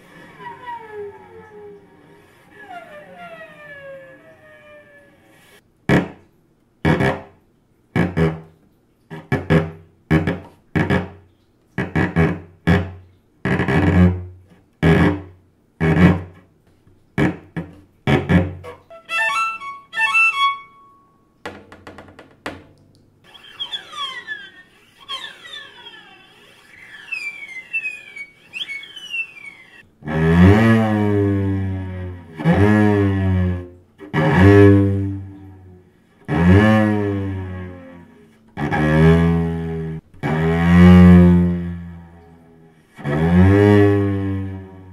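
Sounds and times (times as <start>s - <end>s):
cello bowed imitating animals: 0.0s - 5.6s, 17.2s - 21.1s, 23.2s - 44.9s.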